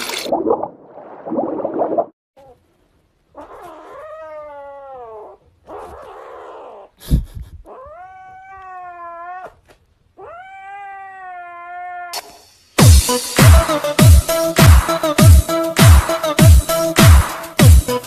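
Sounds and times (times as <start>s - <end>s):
cat yowling: 3.4s - 6.9s, 7.7s - 9.6s, 10.2s - 12.2s.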